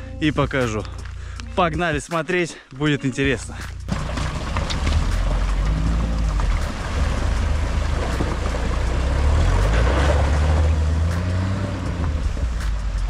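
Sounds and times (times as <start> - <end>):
car driving on dirt road: 3.3 - 13.0.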